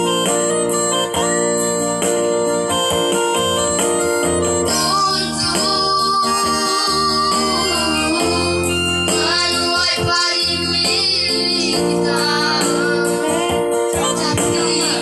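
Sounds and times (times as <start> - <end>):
electronic keyboard organ chords: 0.0 - 15.0
people singing: 4.6 - 15.0.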